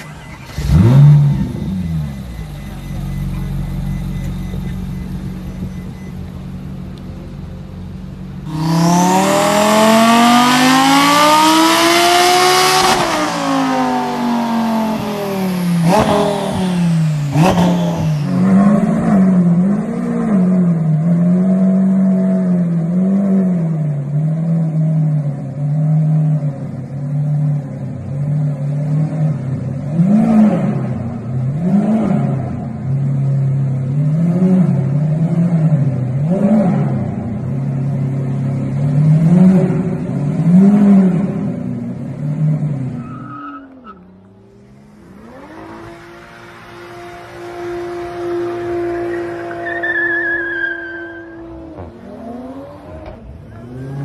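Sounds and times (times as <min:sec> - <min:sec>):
supercar engines revving: 0:00.0 - 0:54.0
quieter engine rising in pitch: 0:08.4 - 0:20.7, 0:43.8 - 0:54.0.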